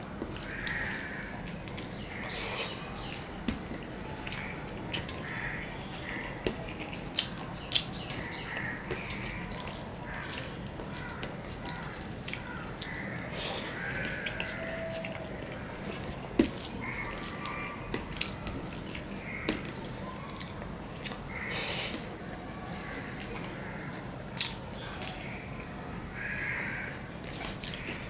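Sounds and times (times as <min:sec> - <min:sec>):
fingers squishing rice and curry: 0:00.0 - 0:25.4, 0:26.2 - 0:28.0
mouth clicks and chewing smacks: 0:00.3 - 0:15.6, 0:24.4 - 0:25.2.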